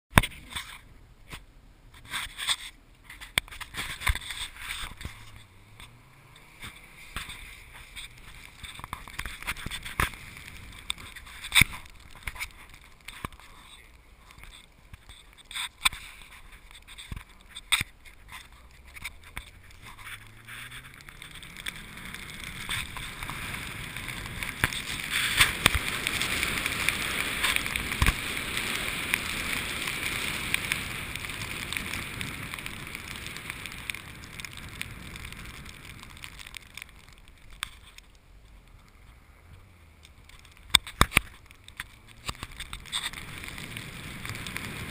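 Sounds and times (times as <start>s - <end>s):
tyres ploughing through snow: 2.0s - 44.9s
car engine revving: 5.1s - 10.9s.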